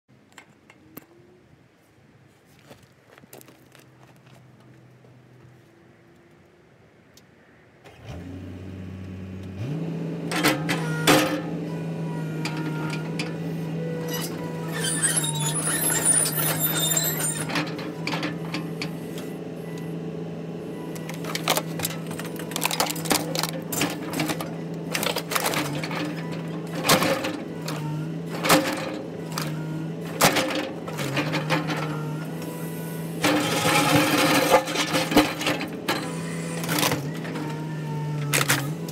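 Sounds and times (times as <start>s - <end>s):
excavator diesel engine: 7.8s - 38.9s
bucket scraping gravel: 14.1s - 18.0s, 21.2s - 32.2s, 33.2s - 37.6s
plastic and metal cracking: 21.0s - 31.9s.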